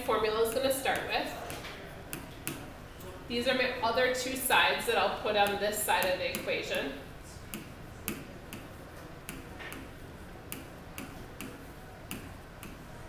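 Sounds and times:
stylus tapping on touchscreen: 0.4s - 2.7s, 7.5s - 13.0s.

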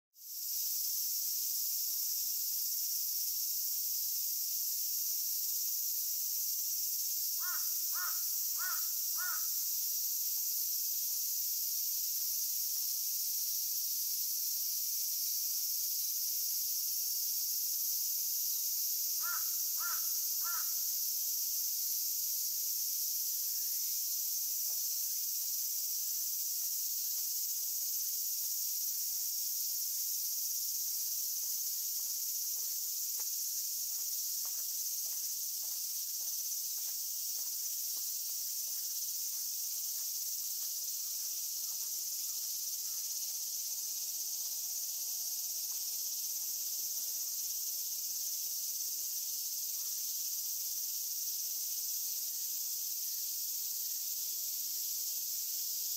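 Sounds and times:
high-pitched insect chorus: 0.2s - 55.9s.

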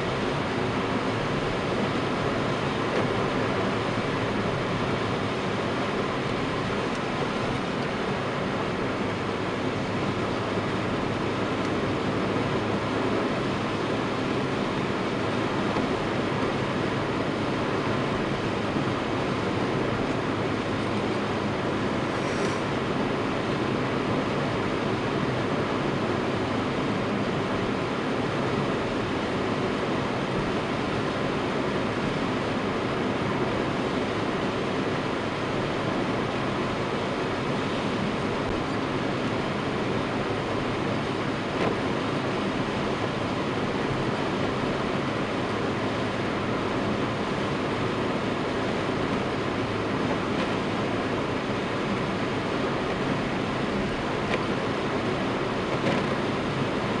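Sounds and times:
car engine cruising: 0.0s - 57.0s
windscreen wipers ticking: 52.8s - 56.9s.

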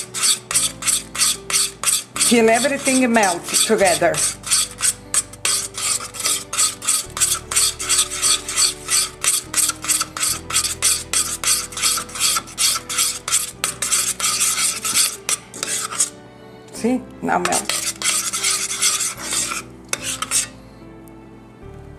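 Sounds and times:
metal spoon scraping a saucepan: 0.0s - 16.2s, 17.3s - 20.6s.

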